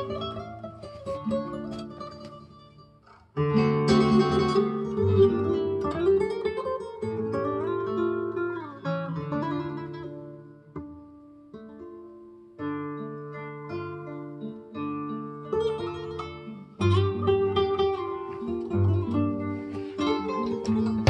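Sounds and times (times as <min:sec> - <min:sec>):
plucked string music over loudspeakers: 0:00.0 - 0:21.0.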